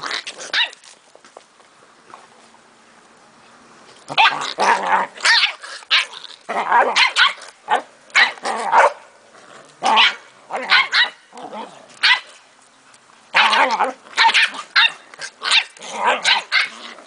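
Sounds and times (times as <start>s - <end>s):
dogs barking: 6.8s - 9.0s, 9.9s - 11.2s.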